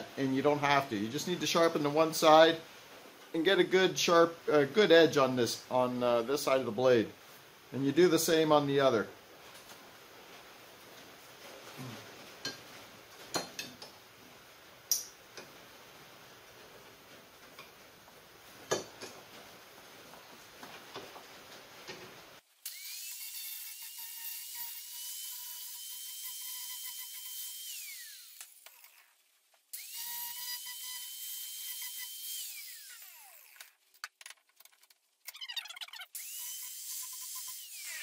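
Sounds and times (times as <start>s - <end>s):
angle grinder whining: 22.7s - 29.1s, 29.8s - 33.7s, 35.6s - 38.0s.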